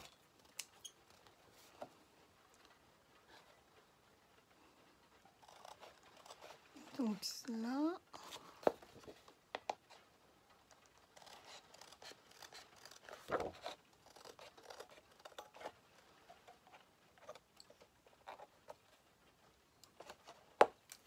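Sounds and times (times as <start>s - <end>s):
paper rustling: 10.8s - 19.0s.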